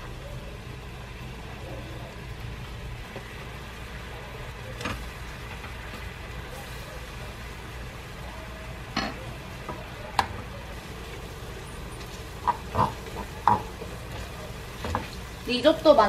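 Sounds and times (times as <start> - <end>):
low steady background noise: 0.0 - 16.0
utensil stirring food in a pan: 0.0 - 16.0
utensil clicking against pan: 12.0 - 14.2.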